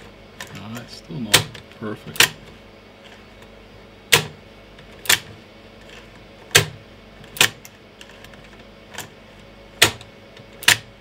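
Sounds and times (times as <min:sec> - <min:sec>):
floppy drive mechanism clacks: 0:00.4 - 0:02.6.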